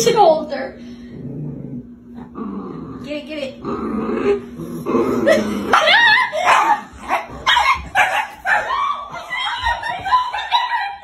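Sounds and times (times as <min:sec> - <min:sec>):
small dog barking and yipping: 0:05.7 - 0:11.0.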